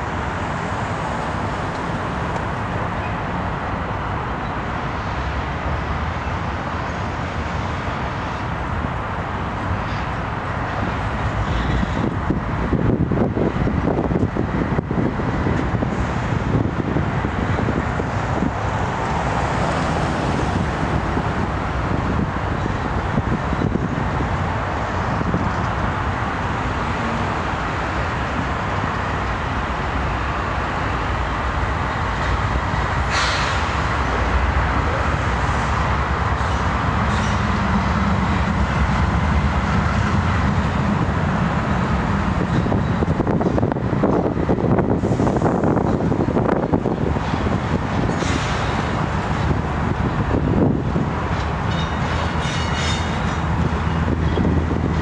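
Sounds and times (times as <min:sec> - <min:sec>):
freight train rumbling on rails: 0:00.0 - 0:55.0
locomotive low hum: 0:06.2 - 0:55.0
sharp rail screech: 0:33.1 - 0:33.8.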